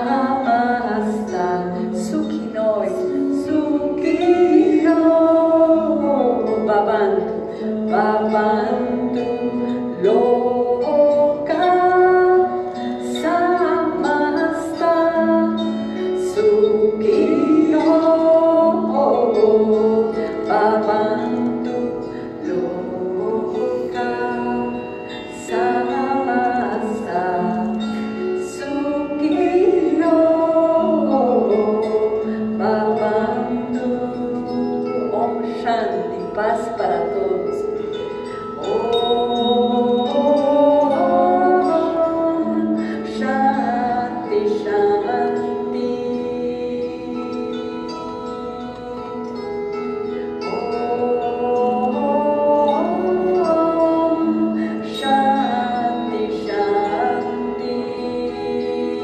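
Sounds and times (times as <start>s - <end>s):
voice singing gliding melody: 0.0s - 59.0s.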